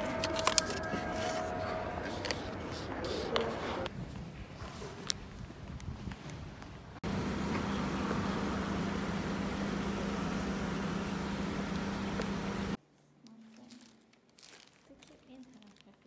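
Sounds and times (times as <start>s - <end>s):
engine running: 7.0s - 12.8s.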